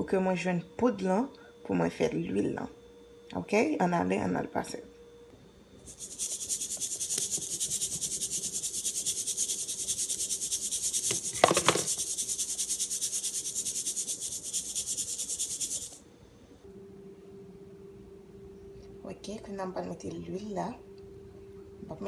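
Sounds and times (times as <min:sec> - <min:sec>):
flour rasping through a sieve: 0:05.9 - 0:16.0.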